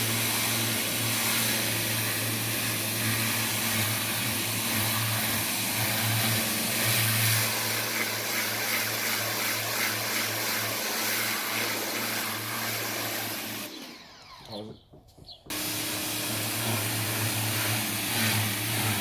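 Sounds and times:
pressure washer spraying water: 0:00.0 - 0:14.1, 0:15.5 - 0:19.0.

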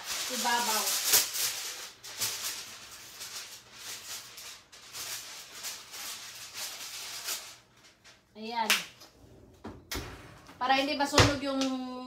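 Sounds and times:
aluminium foil crinkling: 0:00.0 - 0:08.4.

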